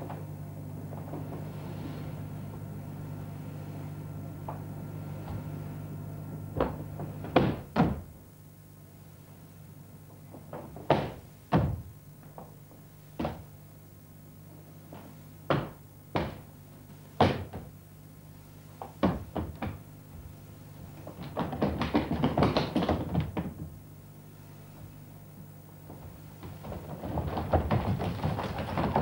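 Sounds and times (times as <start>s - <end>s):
steady low hum: 0.0s - 29.0s
bare feet stamping on stage: 6.6s - 8.1s, 10.1s - 13.5s, 14.9s - 16.5s, 17.2s - 17.8s, 18.8s - 23.8s, 25.8s - 29.0s.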